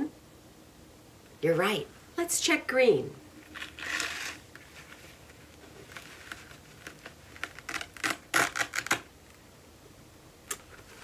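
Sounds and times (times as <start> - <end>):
felt rustling and rubbing: 3.4 - 7.8
scratchy ripping: 3.5 - 9.1.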